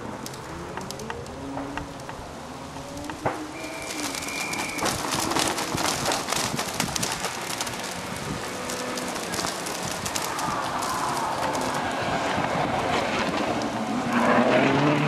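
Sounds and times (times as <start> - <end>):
rally car engine: 0.0 - 15.0
crackle of exhaust pops: 0.2 - 13.8
high whistle: 3.5 - 5.0.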